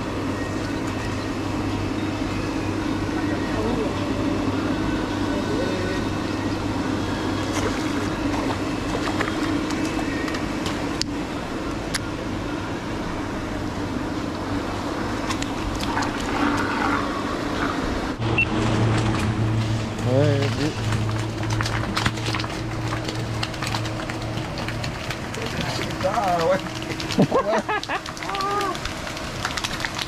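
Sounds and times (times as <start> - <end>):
pond aerator motor hum: 0.0 - 30.0
churning splashing water: 7.2 - 11.0, 14.9 - 30.0.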